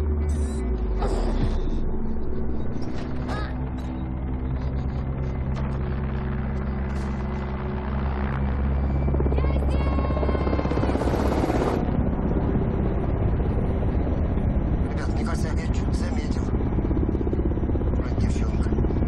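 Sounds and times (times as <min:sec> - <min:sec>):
helicopter drone: 0:00.0 - 0:19.0
woman shouting for help: 0:09.3 - 0:10.8.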